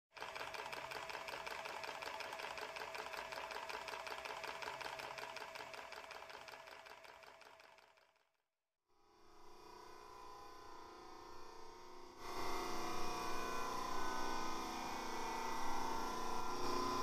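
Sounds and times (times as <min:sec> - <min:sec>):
fast mechanical clatter: 0:00.1 - 0:08.2.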